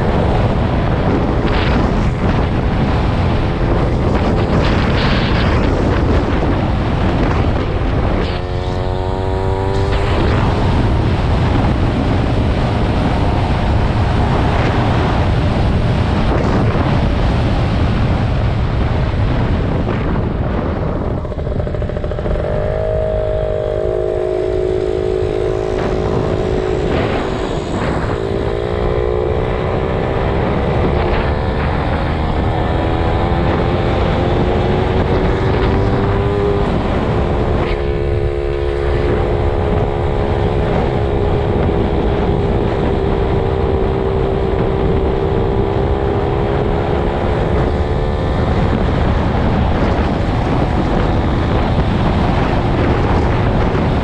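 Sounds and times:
wind rumble on microphone: 0:00.0 - 0:54.0
small motorbike engine running: 0:21.1 - 0:29.4.

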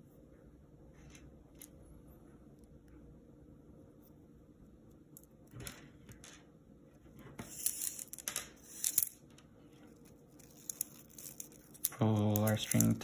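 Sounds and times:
string scraping through beads: 0:07.4 - 0:09.2, 0:09.8 - 0:13.0
plastic beads clicking: 0:10.4 - 0:13.0.

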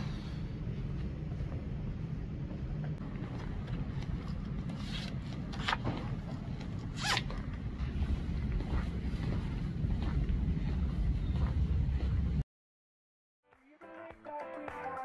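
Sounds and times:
hoodie zipper being pulled: 0:06.9 - 0:07.3.

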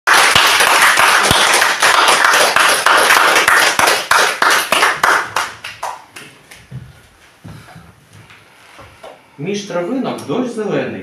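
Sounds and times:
audience clapping: 0:00.1 - 0:06.8.

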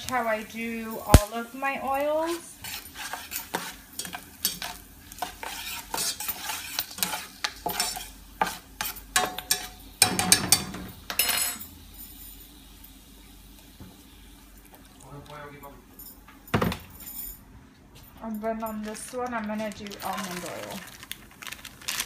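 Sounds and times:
herbs sizzling in oil: 0:00.0 - 0:10.3, 0:11.0 - 0:14.8
utensil scraping metal pot: 0:02.1 - 0:09.7.

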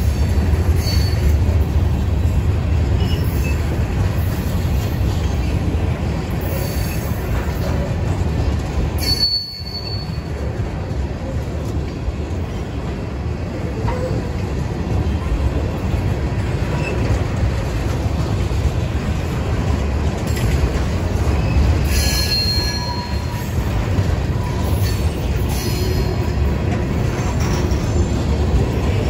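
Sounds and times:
train wheels rumbling on rail: 0:00.0 - 0:29.0
high wheel squeal: 0:00.8 - 0:01.4, 0:09.0 - 0:10.3, 0:21.4 - 0:23.5.

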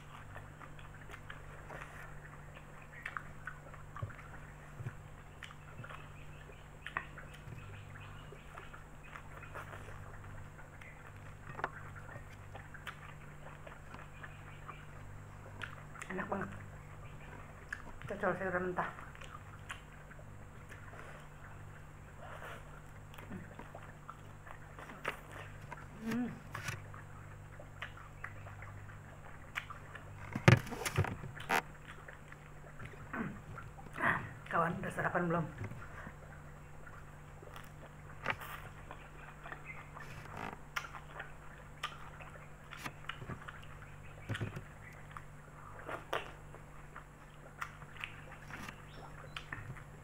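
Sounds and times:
mouth chewing and smacking: 0:00.0 - 0:50.0
steady low hum: 0:00.0 - 0:50.0
leaves rustling and knocks: 0:30.1 - 0:31.7.

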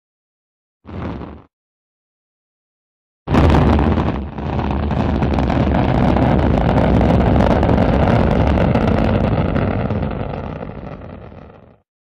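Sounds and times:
rocket launch roar: 0:03.3 - 0:11.8.

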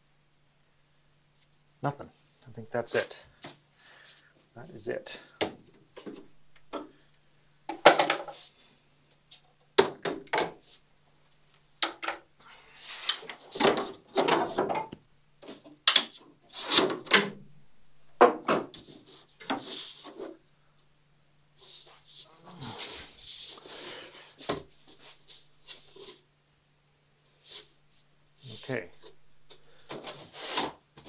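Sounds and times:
wood knocking and scraping on wood: 0:18.2 - 0:20.4.

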